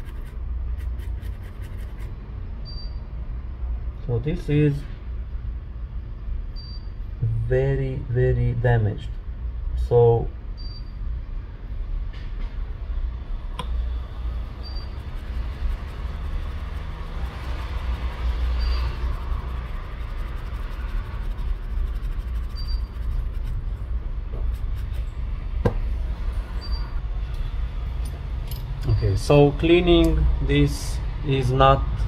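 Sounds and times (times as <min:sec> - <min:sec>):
brush scrubbing a connector: 0:00.0 - 0:02.1, 0:14.5 - 0:25.1
steady low rumble: 0:00.0 - 0:32.0.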